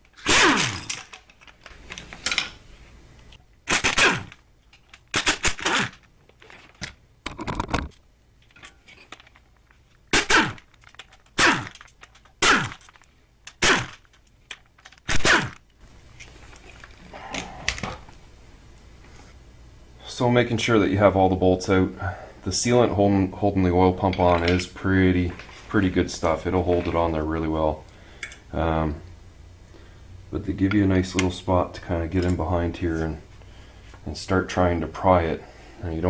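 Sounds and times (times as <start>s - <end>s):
pneumatic air wrench bursts: 0.2s - 1.0s, 3.7s - 4.4s, 5.1s - 6.0s, 10.1s - 12.9s, 13.6s - 14.1s, 15.0s - 15.6s.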